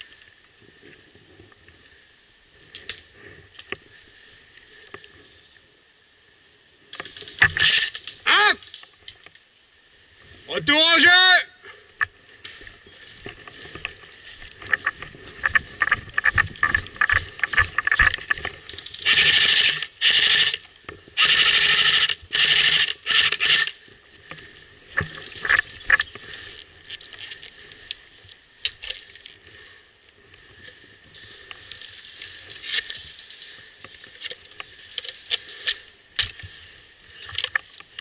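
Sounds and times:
footsteps crunching through dry leaves: 12.3 - 17.2
airsoft rifle bursts: 19.0 - 20.6, 21.2 - 23.8.

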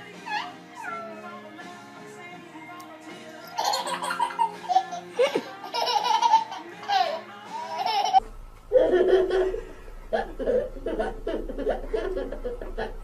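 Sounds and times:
babies giggling: 3.4 - 13.0
baby belly laughing: 3.4 - 13.0.

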